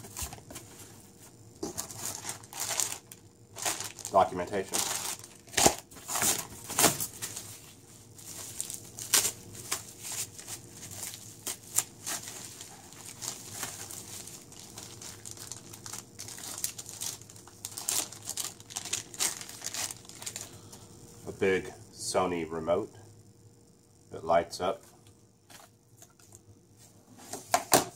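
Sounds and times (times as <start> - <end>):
plastic bags crinkling: 1.6 - 20.6.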